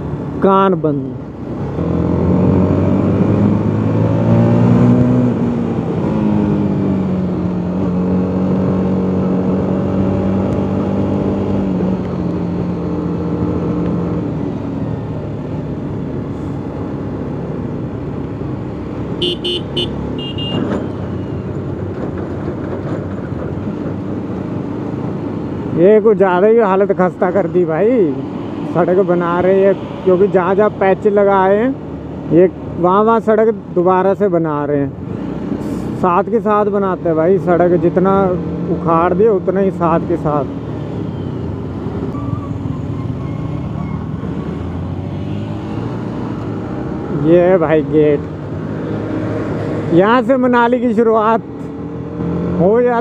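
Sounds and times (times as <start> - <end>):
road and wind noise: 0.0 - 53.0
motorcycle engine revving: 1.7 - 14.4
horn short beeps: 19.2 - 21.4.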